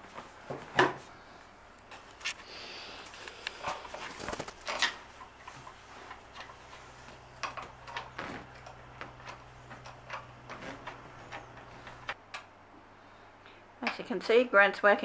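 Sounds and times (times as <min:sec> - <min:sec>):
office chair parts clicking and knocking: 0:03.5 - 0:12.5.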